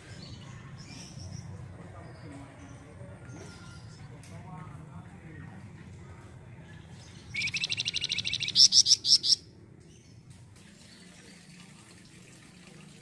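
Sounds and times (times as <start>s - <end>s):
songbird trilling: 7.3s - 9.4s.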